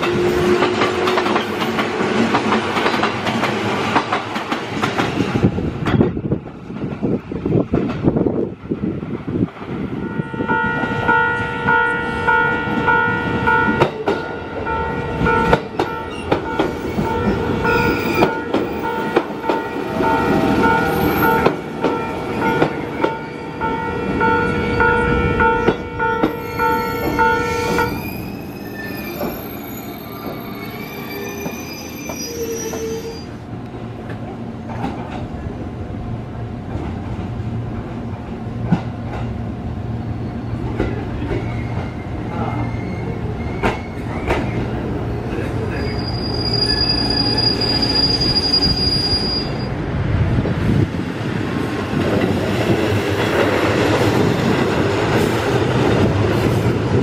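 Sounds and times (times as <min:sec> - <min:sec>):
train wheels clacking over rail joints: 0:00.0 - 0:08.2, 0:13.6 - 0:14.3
low train hum: 0:00.0 - 0:57.0
high wheel squeal: 0:16.0 - 0:19.0, 0:26.3 - 0:33.4, 0:41.4 - 0:44.8, 0:45.7 - 0:49.8.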